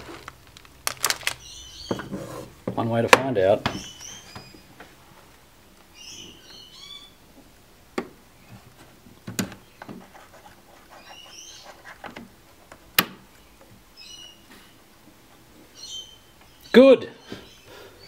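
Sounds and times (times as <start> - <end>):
small bird chirping: 1.1 - 2.1, 3.7 - 4.8, 5.9 - 7.2, 10.7 - 12.0, 13.4 - 14.5.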